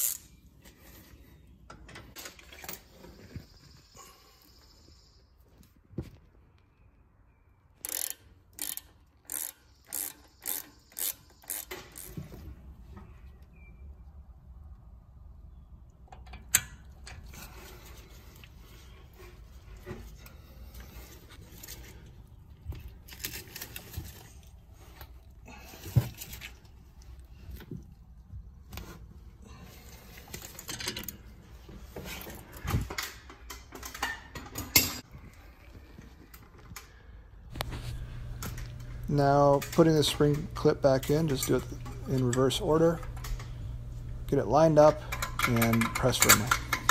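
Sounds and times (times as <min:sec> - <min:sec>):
rasping and clinking: 0:44.7 - 0:46.9
metal hand tools clattering: 0:44.8 - 0:46.9.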